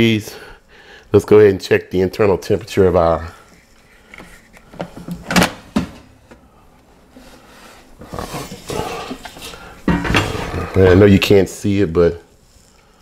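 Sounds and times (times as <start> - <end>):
drawer clunks: 4.9 - 6.1
basket scraping sliding out: 7.2 - 11.0.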